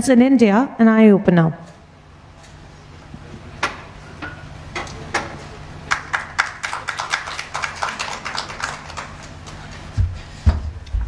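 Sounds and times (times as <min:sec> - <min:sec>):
steady low hum: 0:00.0 - 0:11.0
audience handclaps: 0:05.8 - 0:10.0.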